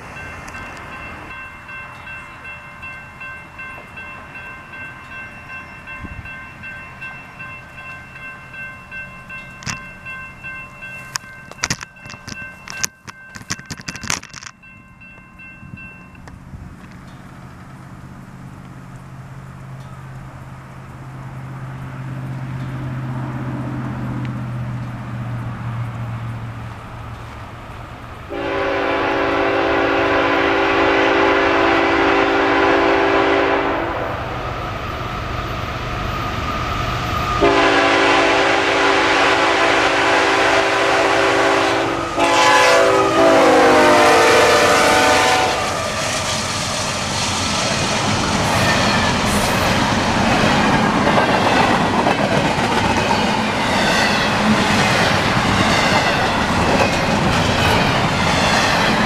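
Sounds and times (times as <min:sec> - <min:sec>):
locomotive air horn blasts: 0:28.3 - 0:34.1, 0:37.4 - 0:45.9
freight cars clacking on rails: 0:44.5 - 0:59.0.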